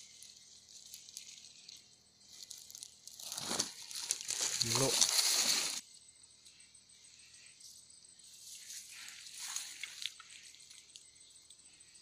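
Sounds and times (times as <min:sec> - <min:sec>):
soft rustling: 0:00.0 - 0:05.8
faint outdoor background: 0:00.0 - 0:12.0
plastic sack crinkling: 0:02.3 - 0:05.8.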